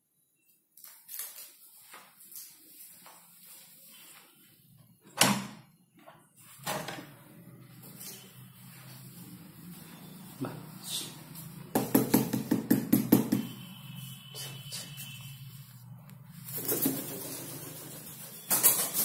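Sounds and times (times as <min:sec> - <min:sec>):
pigeon wings flapping: 0:16.4 - 0:19.0.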